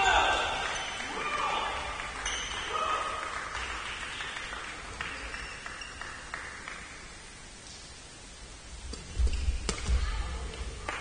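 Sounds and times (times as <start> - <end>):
people clapping in echoing hall: 0.0 - 7.4, 10.8 - 11.0.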